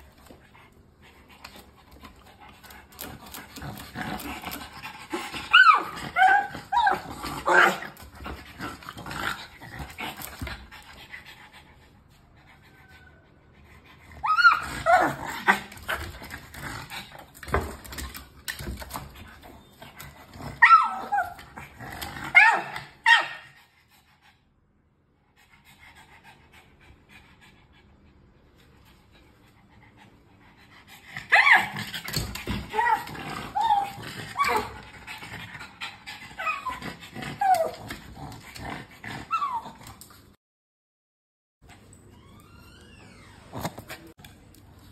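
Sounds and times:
dog whining and whimpering: 3.6s - 7.8s, 12.4s - 15.8s, 19.2s - 23.4s, 31.2s - 35.2s, 36.3s - 37.9s, 39.2s - 39.9s, 42.1s - 44.2s.

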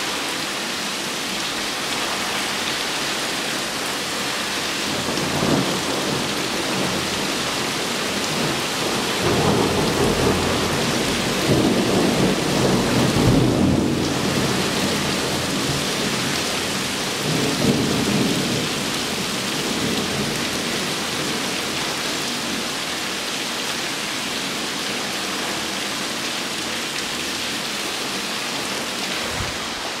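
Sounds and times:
torrential rain pouring: 0.0s - 30.0s
thunder rumbling: 29.1s - 30.0s.

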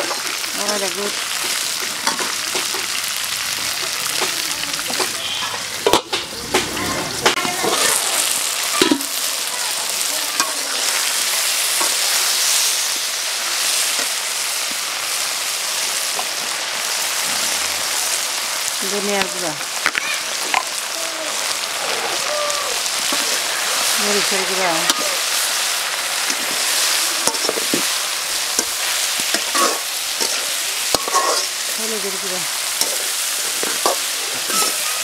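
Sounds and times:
okra sizzling in hot oil: 0.0s - 35.0s
metal spatula scraping a wok: 26.2s - 31.7s, 32.6s - 35.0s.

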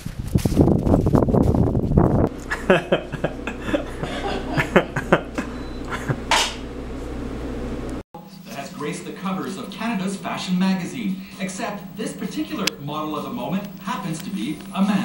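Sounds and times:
low hum: 1.6s - 8.5s.

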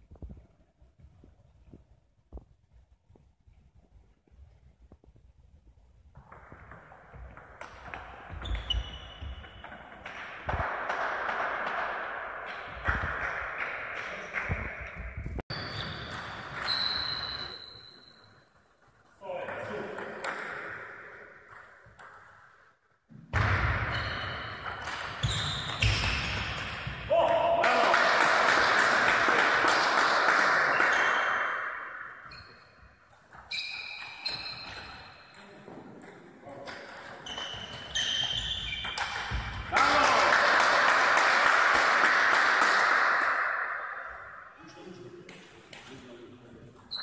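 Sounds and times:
shoe squeaks: 8.3s - 9.8s, 15.5s - 18.4s, 23.9s - 24.6s, 25.2s - 26.4s, 32.3s - 35.3s, 37.1s - 39.4s
table tennis ball hits: 23.2s - 27.4s
applause in a large hall: 27.6s - 31.5s, 39.7s - 43.6s.

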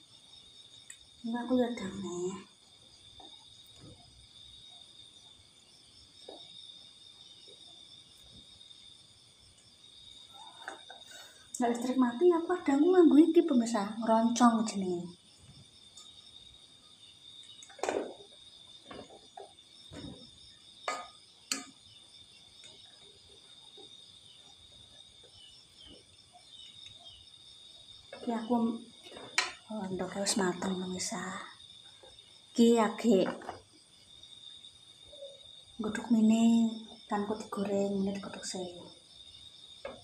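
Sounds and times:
crickets chirping: 0.0s - 40.0s
utensil knocking against a pot: 20.8s - 21.8s, 29.2s - 29.6s.

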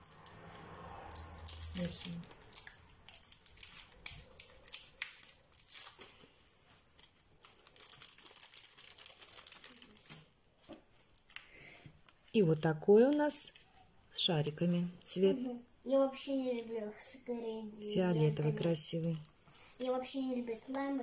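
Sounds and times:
slime crackling: 0.0s - 11.5s.

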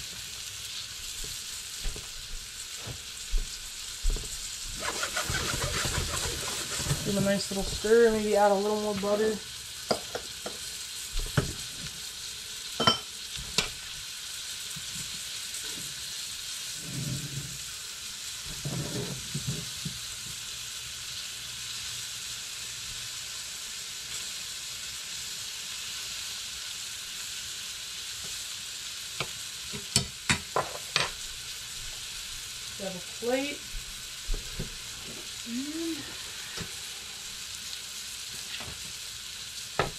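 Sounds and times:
fish sizzling in a frying pan: 0.0s - 39.9s.

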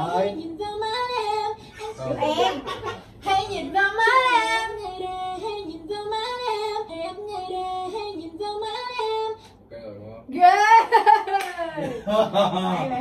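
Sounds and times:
woman singing: 0.3s - 9.5s.

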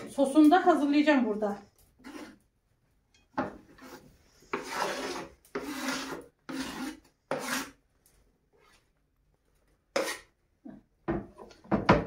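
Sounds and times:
knife scraping on wooden board: 2.0s - 2.4s, 3.7s - 7.8s, 9.9s - 10.3s.

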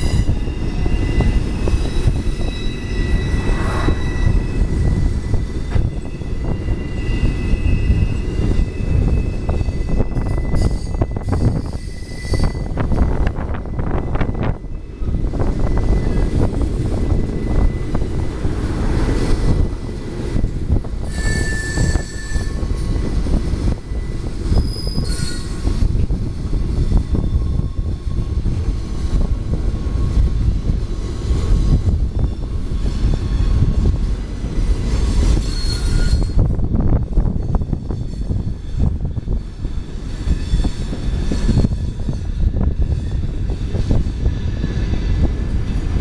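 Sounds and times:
high-pitched wheel squeals: 0.0s - 18.3s, 21.0s - 23.1s, 23.8s - 25.8s, 35.1s - 45.1s
railcar wheels rumbling on rails: 0.0s - 46.0s.

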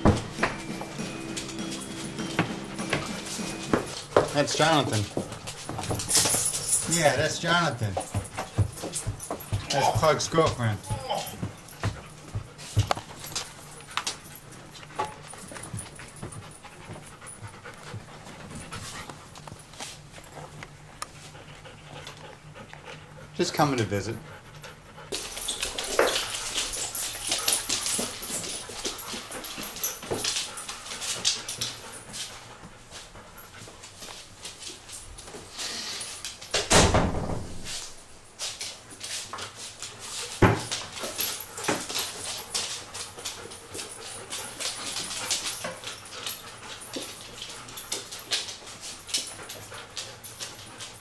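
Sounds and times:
dogs whimpering: 0.0s - 12.5s.

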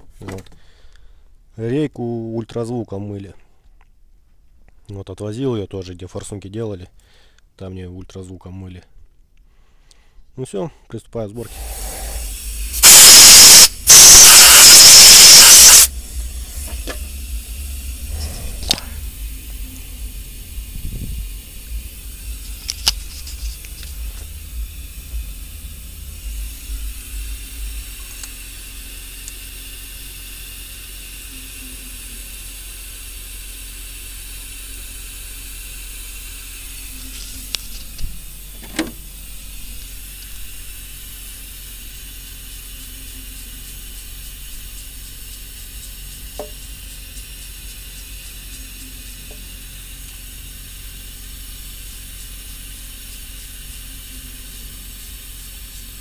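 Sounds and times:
steady hiss: 11.4s - 56.0s
low hum: 15.9s - 32.5s, 34.3s - 47.2s.

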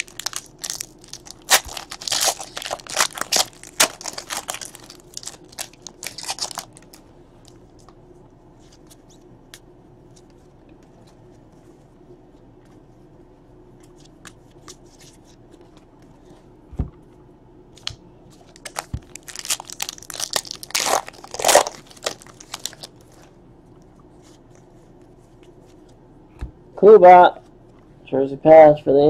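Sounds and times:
wrapper crinkling and tearing: 0.0s - 7.0s, 18.5s - 23.1s.

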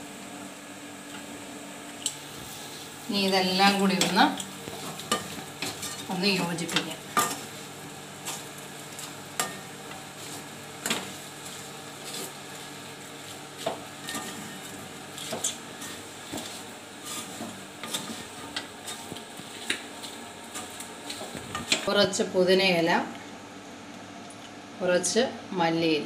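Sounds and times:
frying sizzle: 0.0s - 24.8s
utensil scraping a metal pan: 13.6s - 19.1s.

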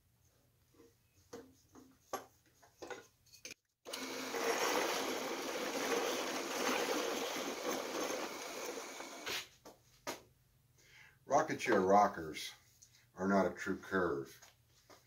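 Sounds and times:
drill press boring into wood: 3.9s - 9.4s.

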